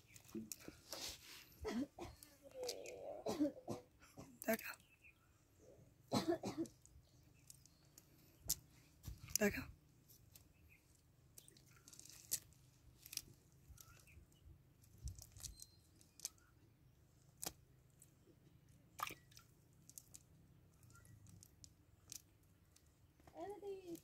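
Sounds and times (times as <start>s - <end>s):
small wet crackles and clicks: 2.1s - 3.0s, 6.6s - 24.0s.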